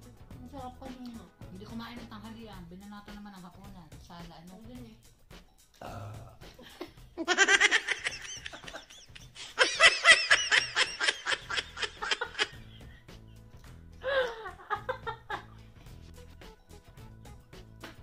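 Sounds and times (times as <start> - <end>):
hearty laughter: 6.6 - 13.0, 14.0 - 15.6.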